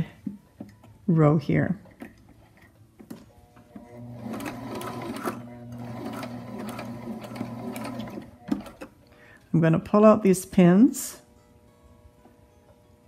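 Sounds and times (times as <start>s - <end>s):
sewing machine motor humming: 3.8s - 8.9s.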